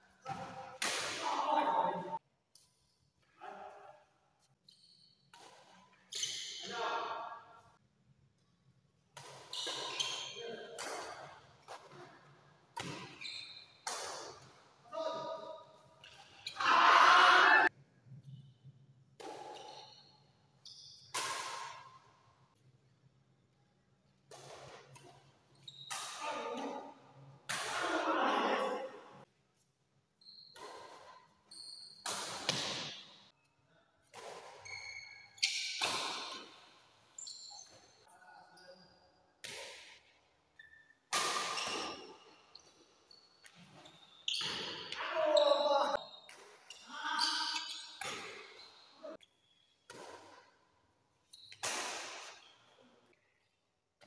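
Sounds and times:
rackets hitting shuttlecock: 0:00.3 - 0:01.3, 0:09.2 - 0:12.1, 0:12.7 - 0:14.6, 0:19.2 - 0:19.8, 0:21.0 - 0:22.1, 0:32.0 - 0:33.1, 0:34.0 - 0:34.8, 0:35.4 - 0:36.8, 0:39.4 - 0:40.2, 0:41.1 - 0:42.7, 0:45.9 - 0:49.2, 0:49.9 - 0:50.6, 0:51.5 - 0:52.5
shoe squeaks on tiled floor: 0:04.6 - 0:05.3, 0:06.1 - 0:06.6, 0:09.5 - 0:10.4, 0:13.1 - 0:13.8, 0:19.6 - 0:21.1, 0:25.5 - 0:25.9, 0:30.2 - 0:30.6, 0:31.5 - 0:32.0, 0:34.6 - 0:35.8, 0:37.2 - 0:38.0, 0:41.6 - 0:49.8, 0:51.2 - 0:51.6
racket striking shuttlecock: 0:21.1 - 0:21.9, 0:32.0 - 0:33.1, 0:41.1 - 0:42.1.

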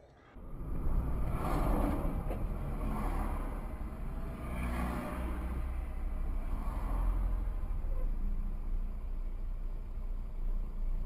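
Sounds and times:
car engine and road rumble: 0:00.1 - 0:11.0.

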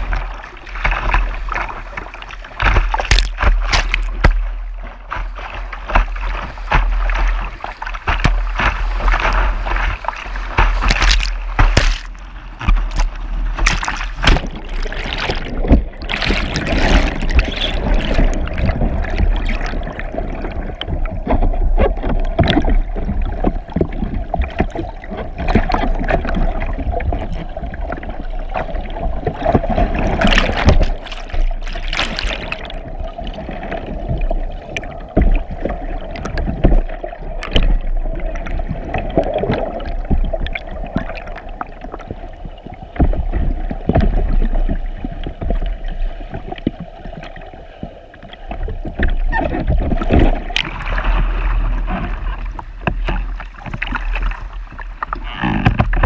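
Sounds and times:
whitewater rushing underwater: 0:00.0 - 0:56.0
sharp knocks: 0:10.6 - 0:14.6.

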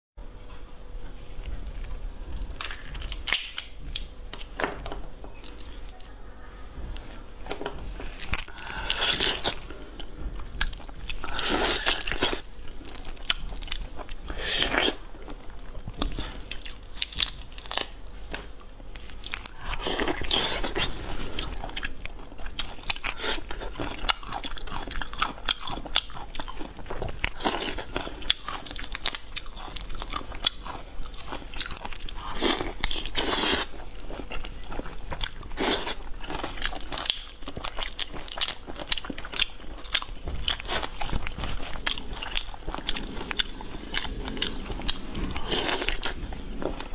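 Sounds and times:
crunching prawn shells: 0:02.2 - 0:04.5, 0:10.6 - 0:18.1, 0:19.0 - 0:46.9
chewing: 0:07.0 - 0:46.9.

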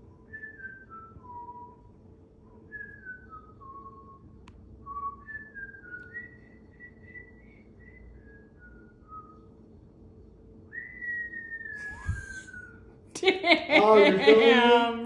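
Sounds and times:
person whistling a tune: 0:00.2 - 0:01.9, 0:02.7 - 0:09.5, 0:10.7 - 0:12.8.

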